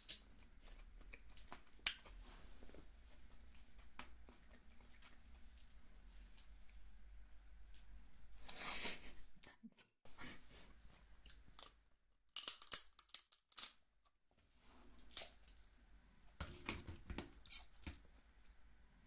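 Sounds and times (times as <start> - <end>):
chewing: 0.4 - 5.7
crab shell cracking: 12.3 - 13.8.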